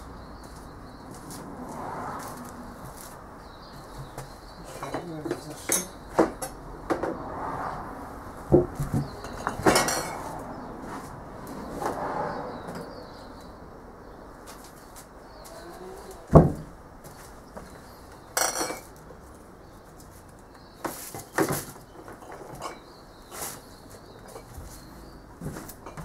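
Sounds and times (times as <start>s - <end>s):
metal objects clinking: 9.2s - 10.3s, 18.4s - 18.9s
loud thump: 16.3s - 16.7s.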